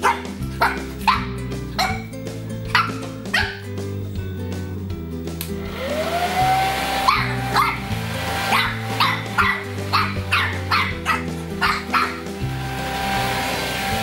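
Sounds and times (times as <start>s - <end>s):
puppy yapping: 0.0s - 2.1s, 2.7s - 3.7s, 7.0s - 7.9s, 8.5s - 12.2s
background music: 0.0s - 14.0s.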